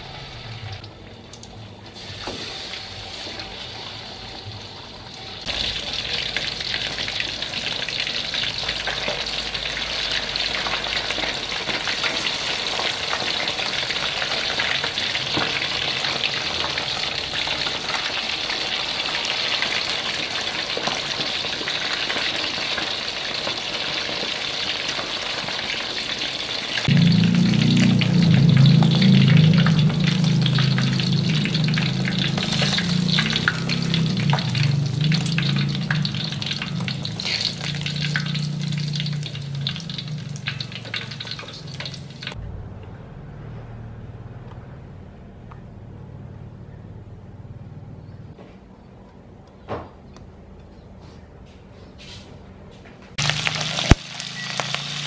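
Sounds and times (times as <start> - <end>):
fish deep-frying in oil: 0.0 - 42.4, 53.2 - 55.0
loud low hum: 26.9 - 40.8, 42.2 - 48.4.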